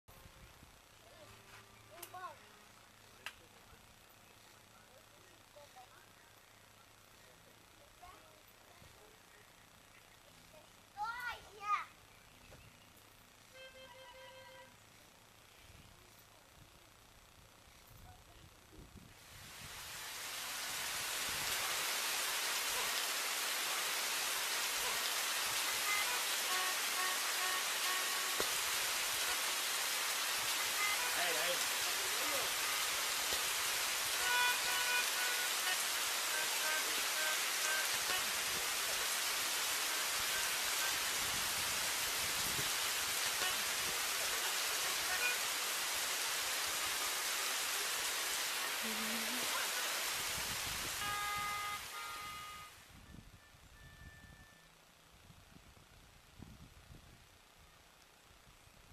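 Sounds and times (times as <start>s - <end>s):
heavy rain pouring on wet ground: 19.3s - 52.7s.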